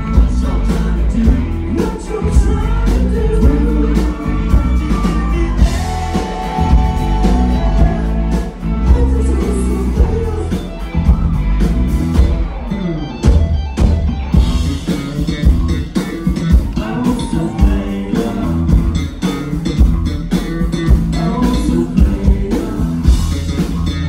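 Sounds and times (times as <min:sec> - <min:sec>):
person singing: 0:00.0 - 0:10.9, 0:16.0 - 0:19.4, 0:20.9 - 0:23.3
bass guitar: 0:00.0 - 0:24.0
drum kit: 0:00.0 - 0:24.0
electric guitar: 0:00.0 - 0:24.0.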